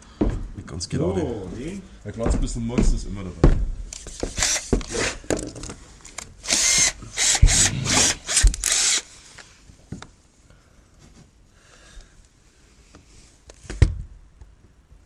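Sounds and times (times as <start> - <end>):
cordless drill driving screw: 4.3 - 5.2, 6.4 - 9.1.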